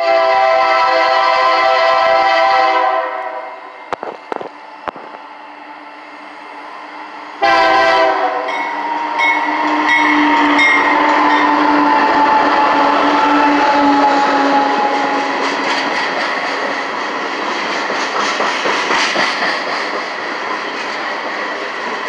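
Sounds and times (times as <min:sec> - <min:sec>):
diesel locomotive horn: 0:00.0 - 0:04.0, 0:07.4 - 0:15.6
locomotive engine and wheels on rails: 0:00.0 - 0:22.0.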